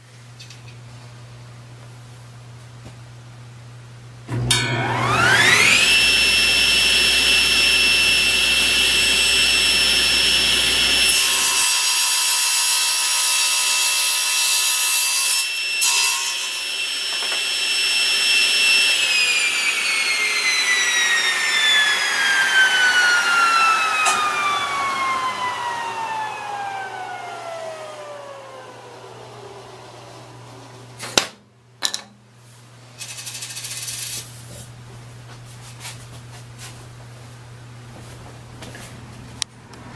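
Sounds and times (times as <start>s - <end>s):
table saw whining: 4.3s - 31.0s
board cut by saw blade: 4.8s - 28.2s.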